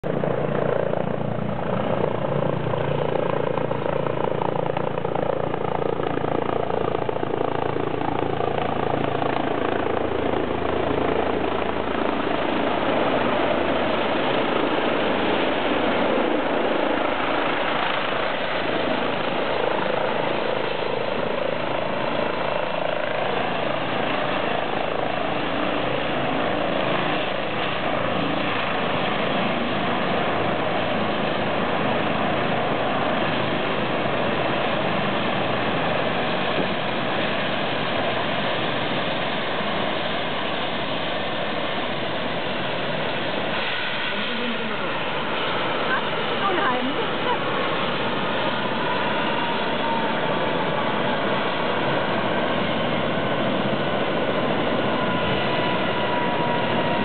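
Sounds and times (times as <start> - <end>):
helicopter rotor noise: 0.0 - 57.0.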